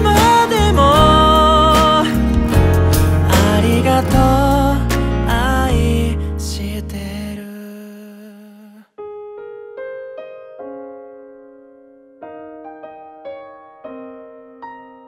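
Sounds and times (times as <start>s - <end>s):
band playing: 0.0s - 5.1s
solo piano notes and chords: 0.0s - 8.0s, 9.0s - 15.0s.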